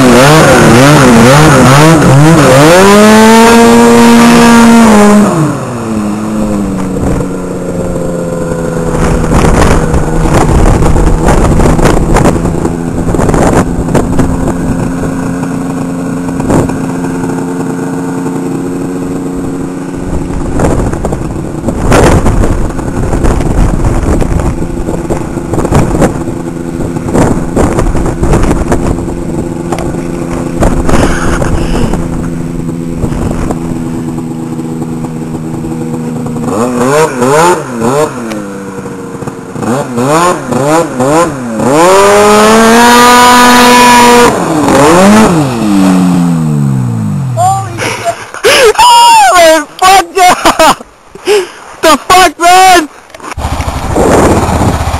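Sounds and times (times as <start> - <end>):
snowmobile engine idling and revving: 0.0 - 54.9.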